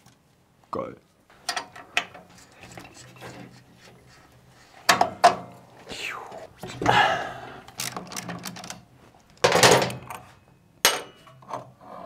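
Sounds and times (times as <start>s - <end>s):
tools and metal parts clicking: 7.7s - 10.2s.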